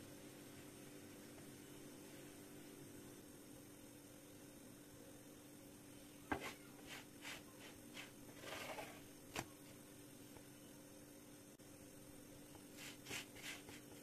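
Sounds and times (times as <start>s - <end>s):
faint steady hum: 0.0s - 14.0s
spatula scraping pan: 8.0s - 9.0s.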